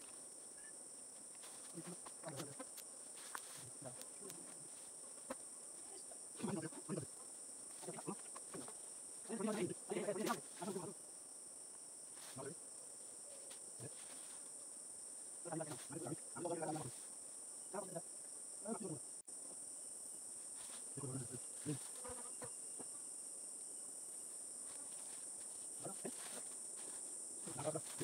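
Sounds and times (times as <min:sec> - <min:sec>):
high-pitched insect chorus: 0:00.0 - 0:28.0.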